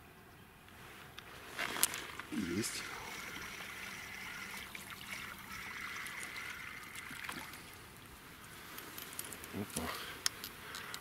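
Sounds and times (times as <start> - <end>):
water trickling and splashing: 2.2 - 9.7.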